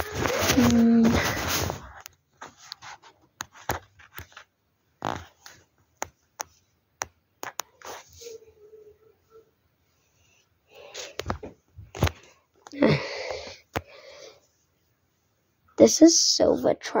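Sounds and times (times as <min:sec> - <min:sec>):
sharp clicks and taps: 0:05.9 - 0:07.7.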